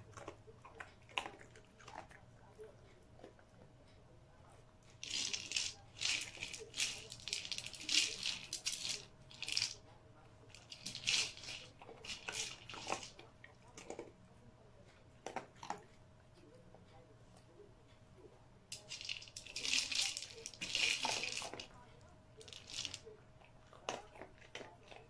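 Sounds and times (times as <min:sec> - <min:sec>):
kibble rattling in plastic ball: 0:04.9 - 0:09.8, 0:10.5 - 0:13.2, 0:18.7 - 0:21.8, 0:22.4 - 0:23.1.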